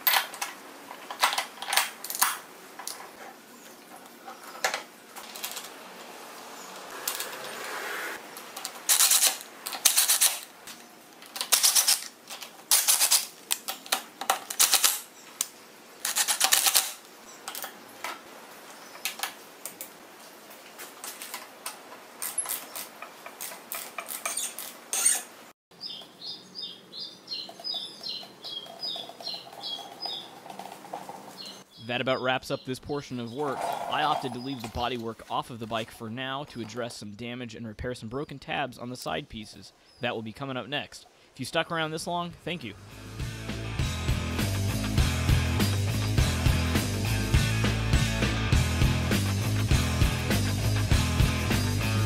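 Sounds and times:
high chirping: 25.8 - 30.4.

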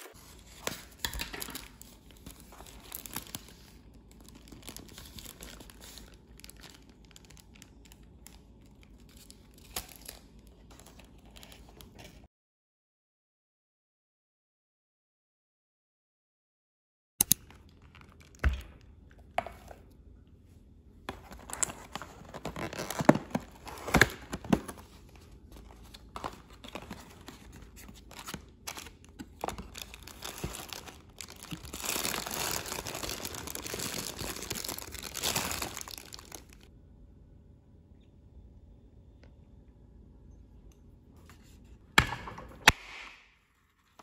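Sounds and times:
paper rustling and tearing: 0.0 - 7.6, 21.1 - 36.7.

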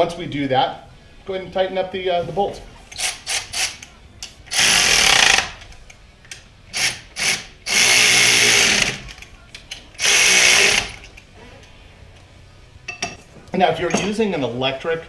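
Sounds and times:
electric ratchet running: 2.9 - 3.9, 4.5 - 5.6, 6.7 - 9.1, 10.0 - 11.1.

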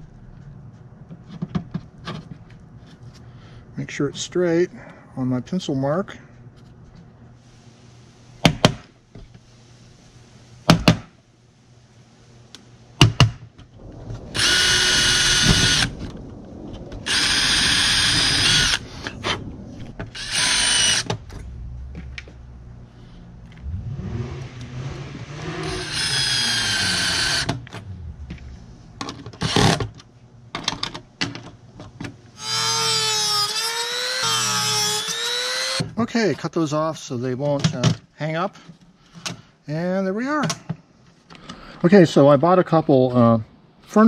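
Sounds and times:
cordless drill whining: 14.4 - 15.9, 17.1 - 18.8, 20.1 - 21.2, 25.4 - 27.7, 32.4 - 35.8.

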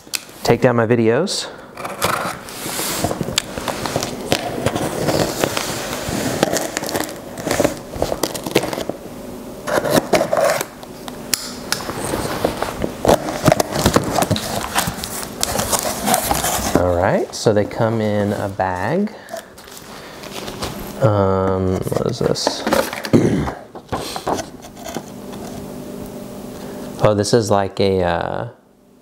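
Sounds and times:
cardboard scraping and crackling: 1.8 - 9.0, 9.6 - 10.7, 11.8 - 18.5, 19.6 - 23.2.

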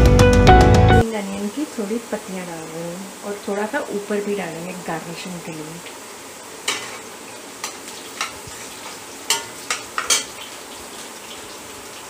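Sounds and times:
vegetables sizzling in a pan: 1.0 - 12.0
metal spatula scraping a pan: 6.6 - 10.4.

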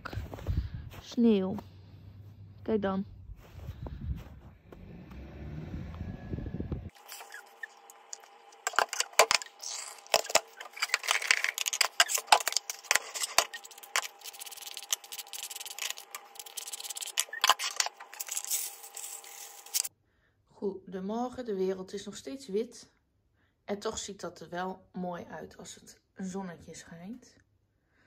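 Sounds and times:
wind rumble on microphone: 0.1 - 1.0, 3.1 - 6.9
cardboard packets handled: 6.9 - 19.9.

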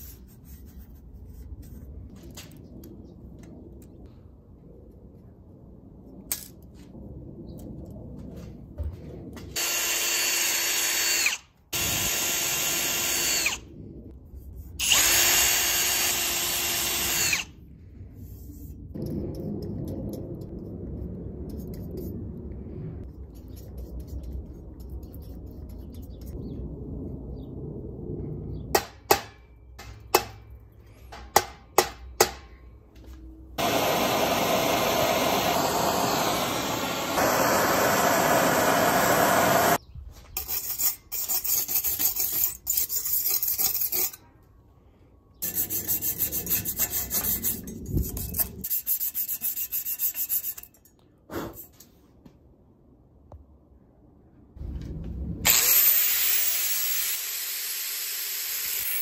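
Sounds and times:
torch hissing: 33.6 - 39.8
filing metal: 40.4 - 44.2, 45.4 - 50.9.

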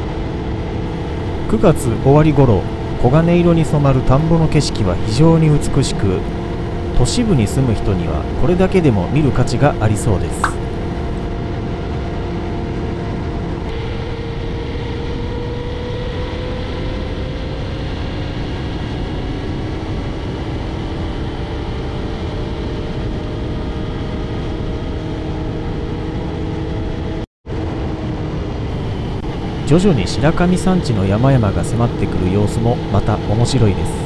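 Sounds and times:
wind and road noise: 0.0 - 34.0
low engine note: 0.6 - 11.2, 27.6 - 34.0.

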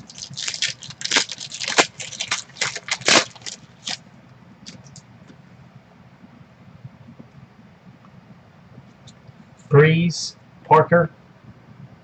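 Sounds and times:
foil wrapper crinkling: 0.0 - 4.0, 4.6 - 5.0.

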